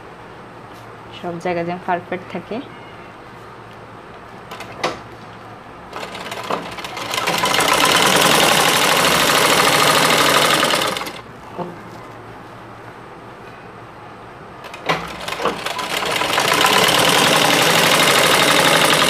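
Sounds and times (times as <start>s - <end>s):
sewing machine stitching: 5.9s - 11.2s, 14.6s - 19.0s.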